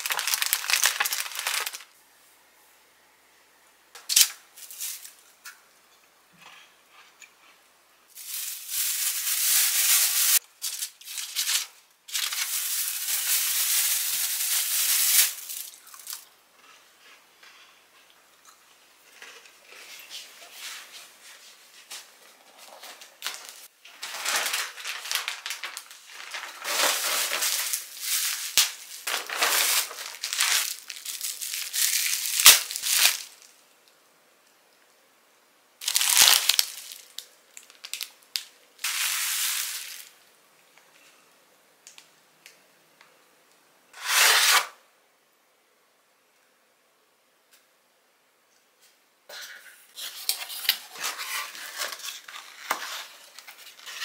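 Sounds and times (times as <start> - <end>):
plastic packaging crinkling: 0.0 - 2.0, 8.2 - 16.3, 22.6 - 33.6, 35.8 - 40.2, 50.3 - 54.0.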